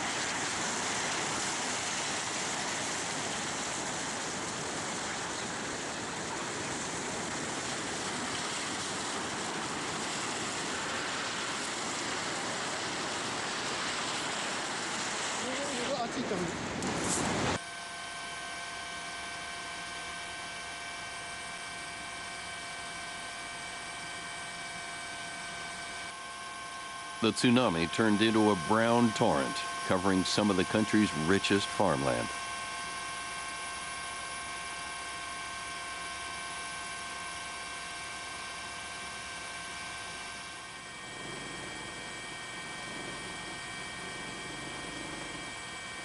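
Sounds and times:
helicopter turbine whine: 0:00.0 - 0:46.0
helicopter cabin hiss: 0:27.2 - 0:32.3
high whining tones: 0:38.3 - 0:46.0.

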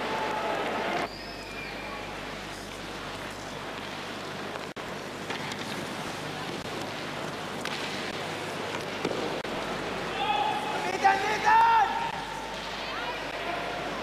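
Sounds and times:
arena crowd murmur: 0:09.5 - 0:14.0.

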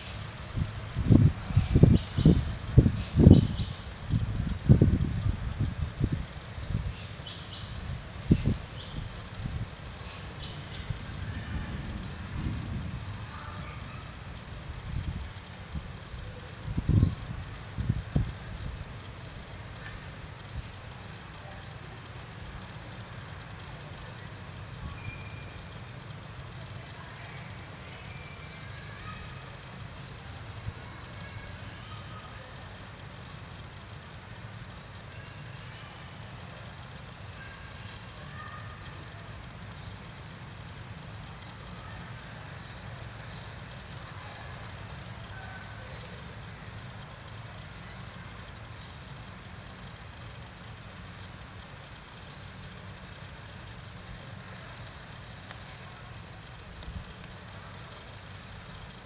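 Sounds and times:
steady low rumble: 0:00.0 - 0:34.8.

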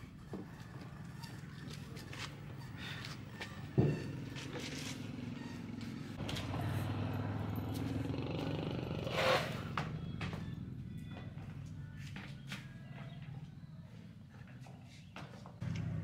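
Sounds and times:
small engine running: 0:00.5 - 0:12.0, 0:15.6 - 0:16.0.

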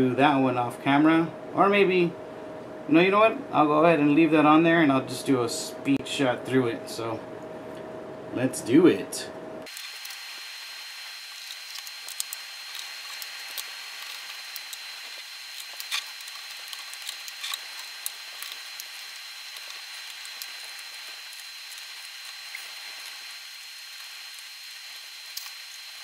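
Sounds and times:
thin high whine: 0:00.0 - 0:26.0
steady hiss: 0:09.6 - 0:26.0.

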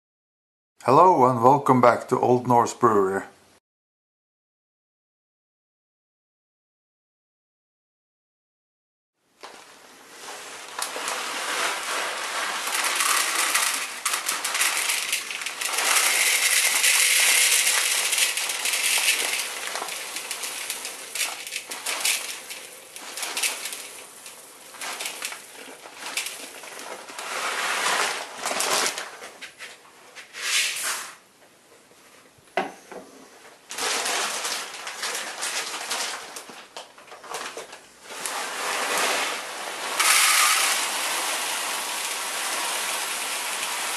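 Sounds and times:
grain pouring into bowl: 0:10.2 - 0:29.0, 0:33.7 - 0:36.4, 0:38.1 - 0:43.9
plastic bag crinkling: 0:10.2 - 0:29.4, 0:33.7 - 0:43.9.

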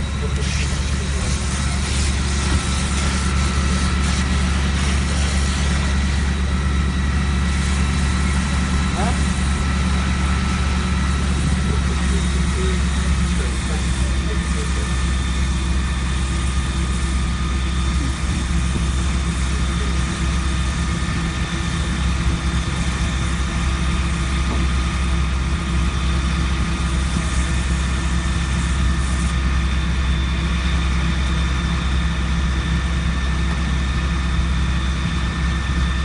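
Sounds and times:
fire engine engine droning: 0:00.0 - 0:36.0
water pumping hiss: 0:00.2 - 0:23.4.

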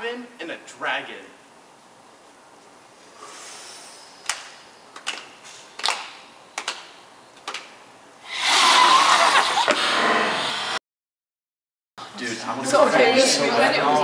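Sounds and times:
group roaring exhale: 0:09.6 - 0:10.8.

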